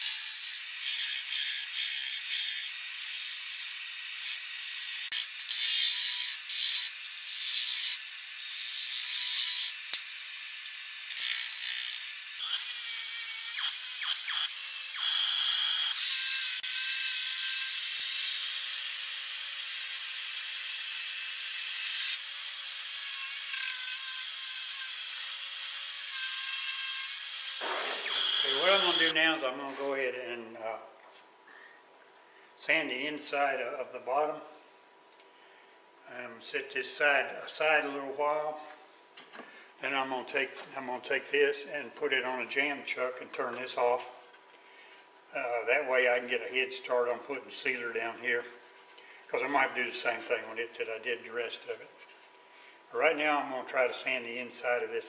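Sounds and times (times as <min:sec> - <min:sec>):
rotary sanding disc whirring: 0:27.6 - 0:29.1
gouge cutting wood on a lathe: 0:28.0 - 0:29.1.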